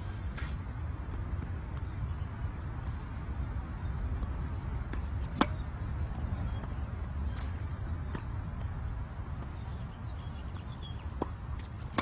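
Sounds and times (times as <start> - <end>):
tennis racket striking ball: 4.9 - 5.6, 11.2 - 12.0.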